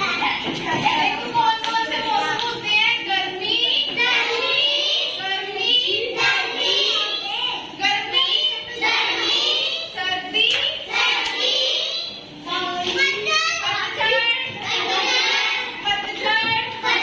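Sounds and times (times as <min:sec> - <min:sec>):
children chanting in unison: 0:03.5 - 0:17.0.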